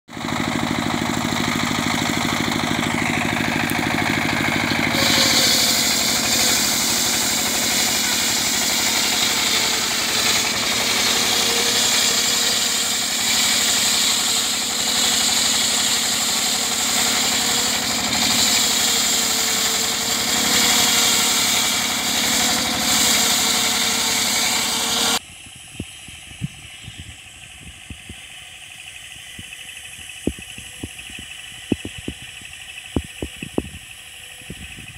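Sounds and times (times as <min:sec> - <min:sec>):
sawmill engine running: 0:00.1 - 0:34.9
saw blade cutting log: 0:00.2 - 0:25.2.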